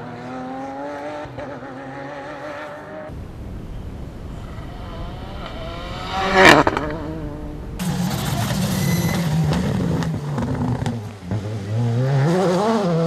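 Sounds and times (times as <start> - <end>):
rally car at high revs: 0.0 - 13.0
rally car engine passing: 0.0 - 13.0.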